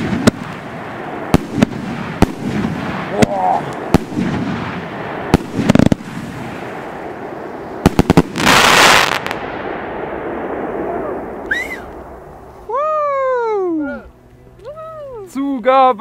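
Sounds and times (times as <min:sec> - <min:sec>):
firework bangs: 0:00.0 - 0:12.6
firework cracks: 0:00.0 - 0:13.0
background crackle: 0:00.0 - 0:16.0.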